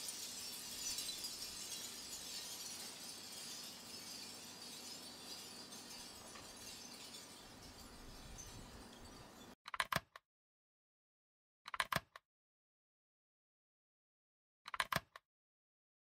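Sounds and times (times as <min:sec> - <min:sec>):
shell wind chimes clinking: 0:00.0 - 0:09.6.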